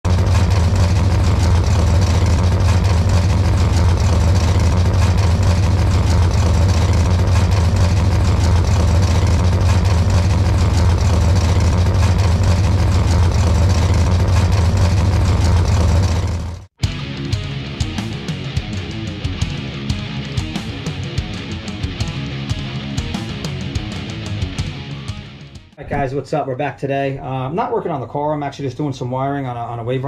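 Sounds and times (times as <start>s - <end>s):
engine idling with deep hum: 0.0s - 16.7s.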